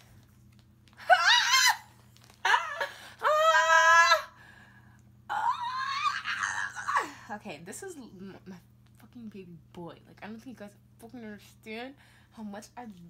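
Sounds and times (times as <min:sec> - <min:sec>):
young woman squealing excitedly: 0:01.0 - 0:04.3, 0:05.3 - 0:07.1.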